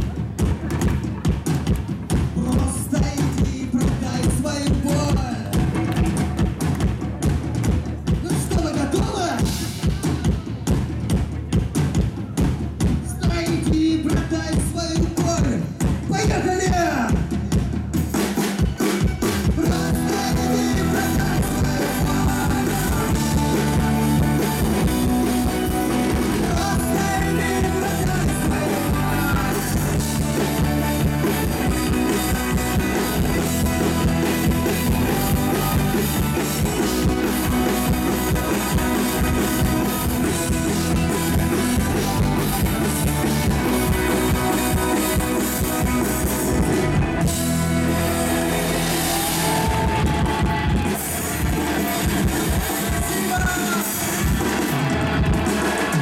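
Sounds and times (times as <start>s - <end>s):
bass guitar: 0.0s - 56.0s
drum kit: 0.0s - 56.0s
electric guitars: 18.4s - 56.0s.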